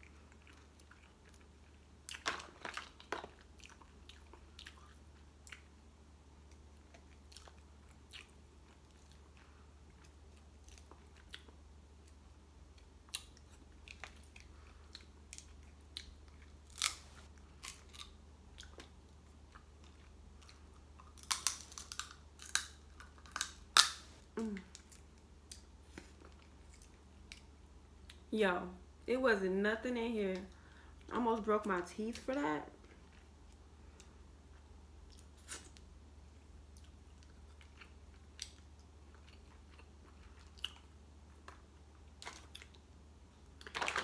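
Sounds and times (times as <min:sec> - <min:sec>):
crab shell cracking: 0:21.2 - 0:24.1.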